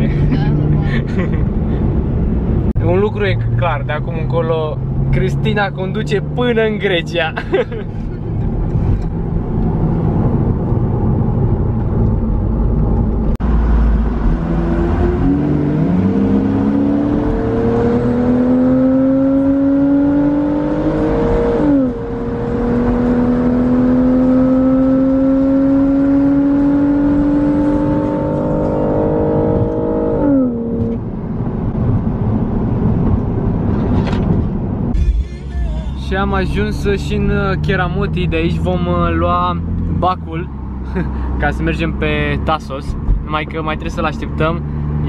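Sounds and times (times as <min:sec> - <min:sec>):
car engine accelerating: 0:00.0 - 0:45.0
road noise: 0:00.0 - 0:45.0.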